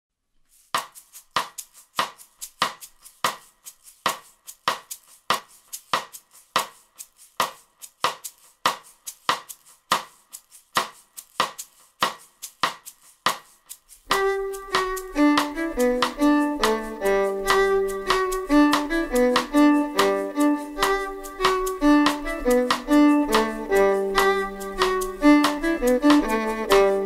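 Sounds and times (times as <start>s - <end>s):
percussive clicks beat: 0.7s - 27.0s
plucked and bowed strings: 14.1s - 27.0s.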